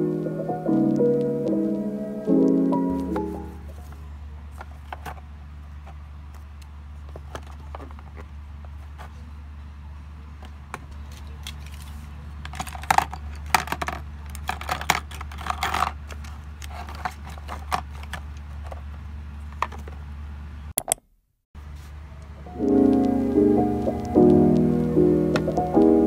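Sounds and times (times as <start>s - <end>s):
soft music: 0.0s - 3.8s, 22.2s - 26.0s.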